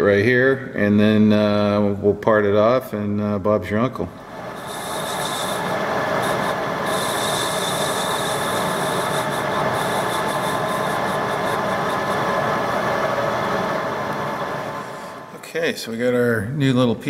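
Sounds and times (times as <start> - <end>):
metal lathe running with high whine: 4.2 - 15.3.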